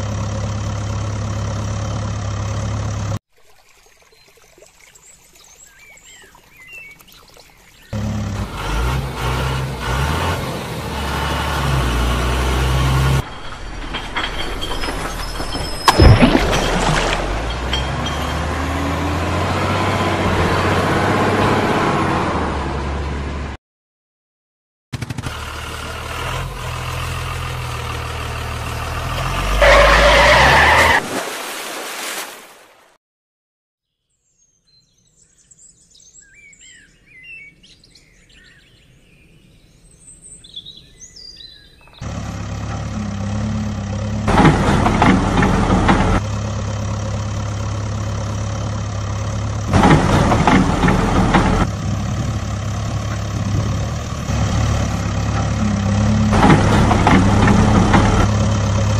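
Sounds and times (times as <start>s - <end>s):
small birds chirping: 4.0s - 8.0s, 33.8s - 42.0s
truck engine revving: 7.9s - 23.6s, 25.0s - 31.0s, 42.0s - 58.9s.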